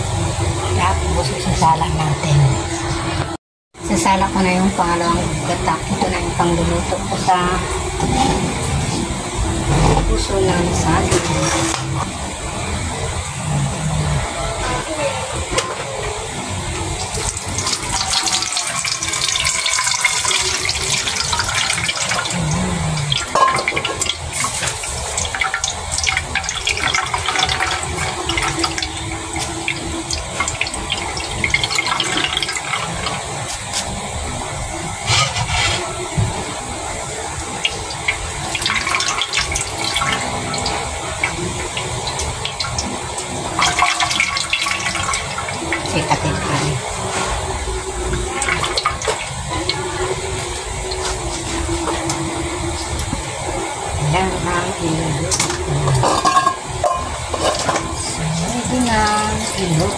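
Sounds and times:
liquid splashing and trickling: 17.0 - 33.9, 37.6 - 53.2.

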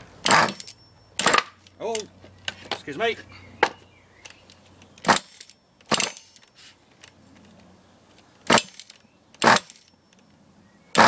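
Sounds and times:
nitro engine start bursts: 0.2 - 1.4, 8.5 - 9.8.

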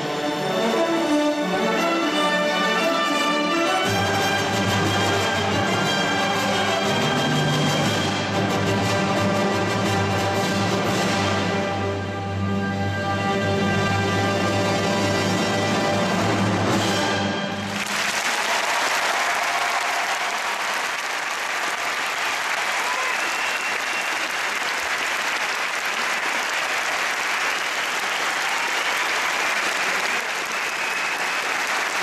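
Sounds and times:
music: 0.0 - 18.2
crowd applause: 17.6 - 32.0.

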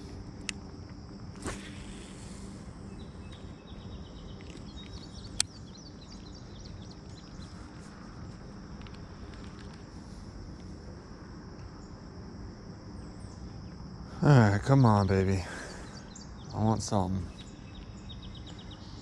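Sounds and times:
insect chorus buzzing: 0.0 - 19.0.

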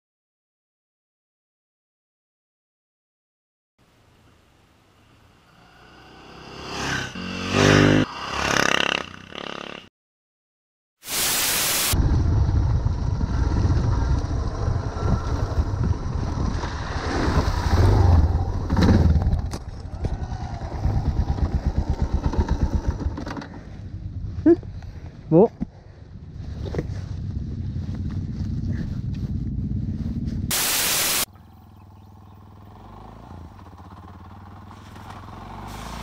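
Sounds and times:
motorcycle passing by: 5.0 - 9.9, 12.0 - 24.6, 26.1 - 30.5, 31.3 - 36.0
brief hiss: 11.0 - 12.0, 30.5 - 31.3
single-cylinder engine at low revs: 12.0 - 25.0, 26.0 - 30.5, 31.3 - 36.0.

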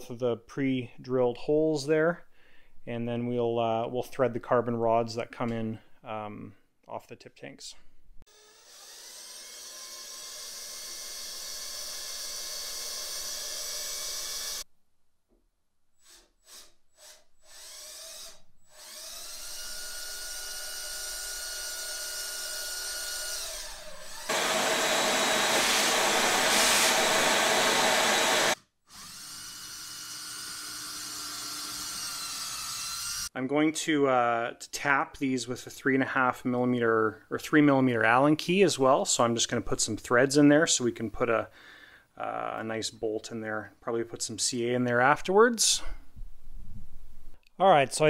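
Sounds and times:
cordless drill drilling: 8.3 - 14.6, 16.0 - 33.3.

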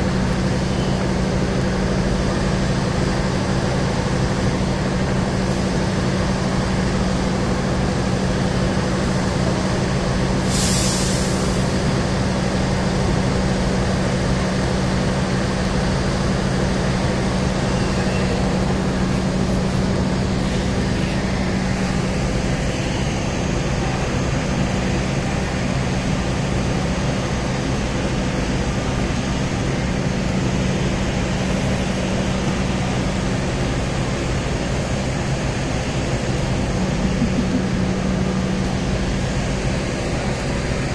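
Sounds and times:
diesel train engines droning: 0.0 - 40.9
compressed air hiss: 10.5 - 11.6.

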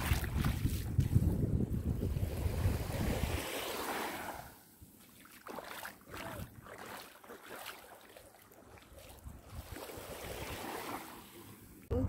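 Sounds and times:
wind gust on microphone: 0.0 - 3.6
small waves lapping on shore: 0.0 - 11.9.

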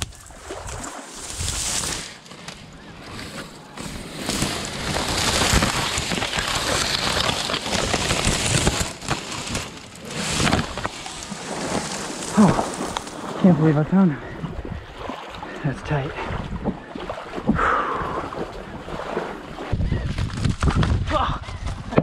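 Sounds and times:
dry reed stems crackling: 0.0 - 13.8.

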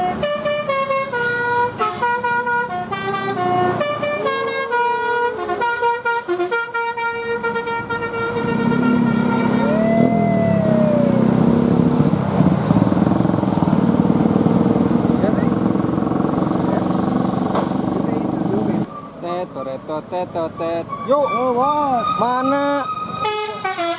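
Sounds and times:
bus musical horn melody: 0.0 - 9.9, 22.9 - 23.9
bus engine passing: 0.0 - 22.2
motorcycles: 7.3 - 23.8.

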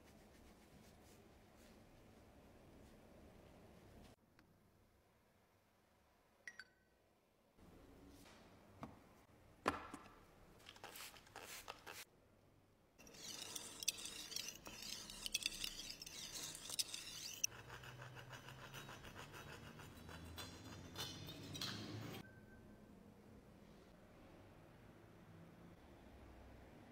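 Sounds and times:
razor scraping on sharpening hone: 13.0 - 22.2.

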